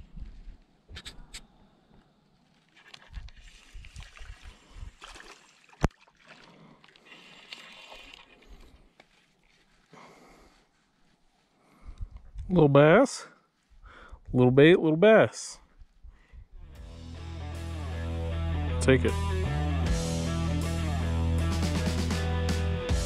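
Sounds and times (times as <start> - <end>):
rustling handling noise: 8.9 - 10.0.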